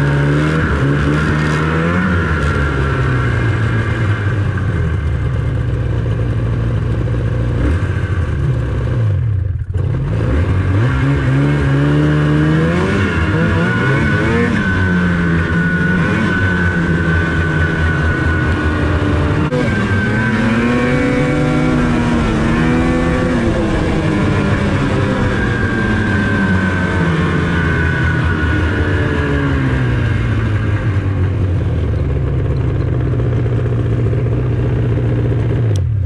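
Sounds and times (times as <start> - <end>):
snowmobile engine revving: 0.0 - 4.9, 9.8 - 31.6.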